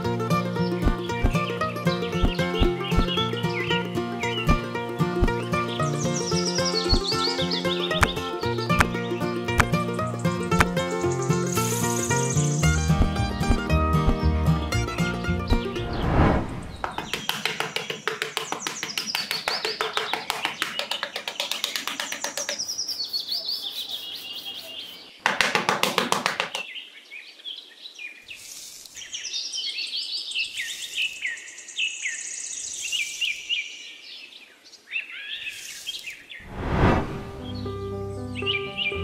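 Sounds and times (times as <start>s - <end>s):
birds chirping and singing: 0.5s - 14.3s, 22.1s - 25.1s.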